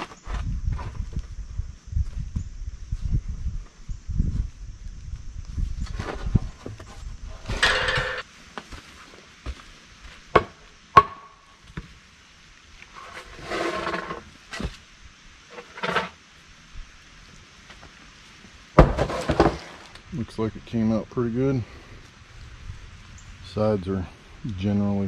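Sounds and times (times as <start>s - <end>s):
wooden boards rustling: 5.8s - 8.8s, 12.8s - 14.8s, 15.5s - 16.2s, 18.8s - 20.0s
scrape of wooden boards: 12.9s - 14.8s, 15.5s - 16.2s, 18.8s - 19.9s.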